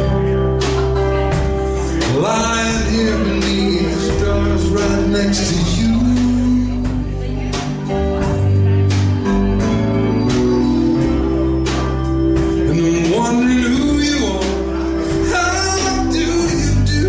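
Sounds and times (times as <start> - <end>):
man singing: 1.7 - 8.4, 12.4 - 17.0.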